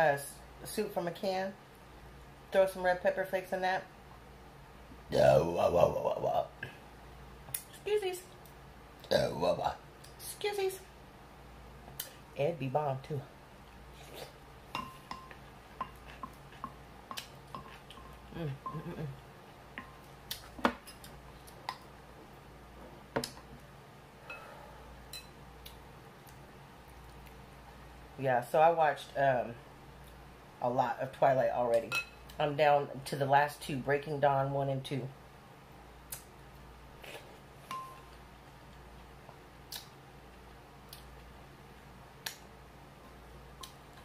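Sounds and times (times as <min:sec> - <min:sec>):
wooden spoon tapping glass bowls: 0:14.7 - 0:16.8
mouth clicks and smacks chewing: 0:39.7 - 0:40.0.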